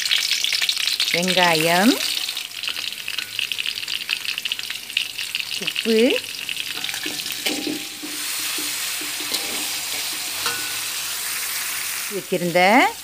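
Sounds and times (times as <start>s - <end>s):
onion and garlic sizzling in oil: 0.0s - 13.0s
metal spatula scraping a pan: 6.7s - 12.0s.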